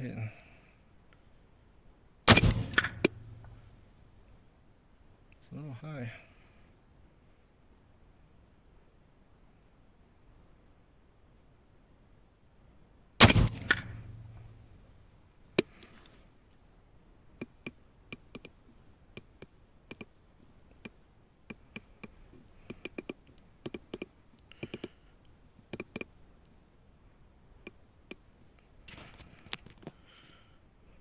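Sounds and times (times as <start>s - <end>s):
rifle shot: 2.3s - 3.6s, 13.2s - 14.8s
light irregular clicks: 17.4s - 26.6s.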